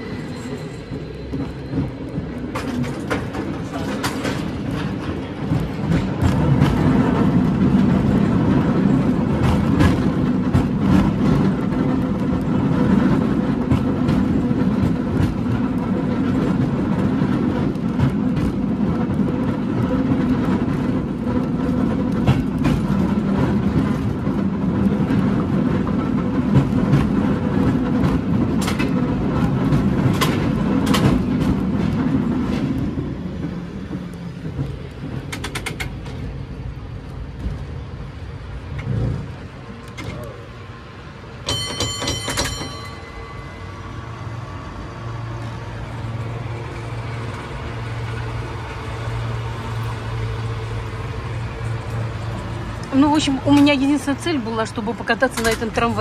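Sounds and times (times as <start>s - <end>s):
cable car rumbling: 0.0s - 56.0s
clanks and rattles: 2.4s - 8.0s.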